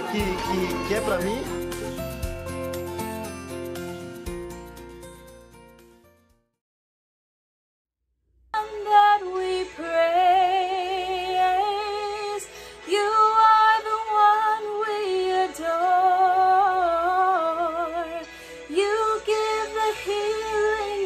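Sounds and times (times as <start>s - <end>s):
young woman singing: 8.6s - 21.0s
singer breathing: 12.5s - 12.9s, 18.2s - 18.7s.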